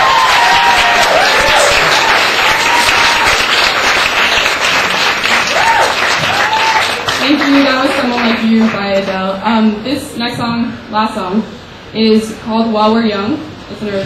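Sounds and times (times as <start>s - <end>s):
people whooping: 0.0s - 3.7s, 5.3s - 7.2s
audience applauding: 0.0s - 9.3s.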